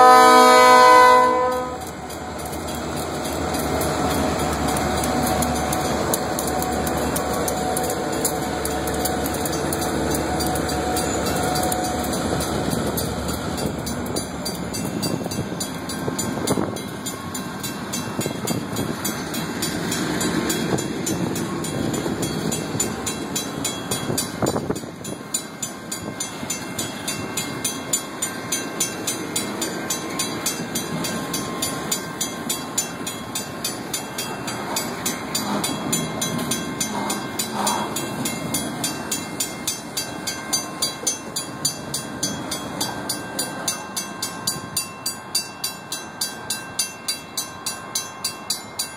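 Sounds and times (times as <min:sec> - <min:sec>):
crossing bell ringing: 0:00.0 - 0:48.9
train wheels rumbling on rails: 0:00.0 - 0:48.9.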